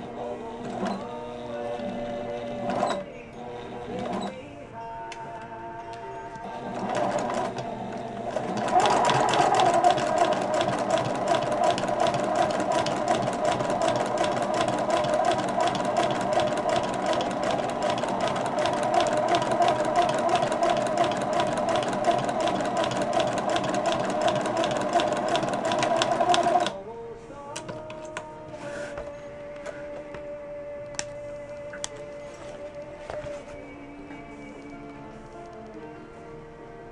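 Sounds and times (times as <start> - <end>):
sewing machine stitching: 0.6 - 4.4, 6.6 - 26.8.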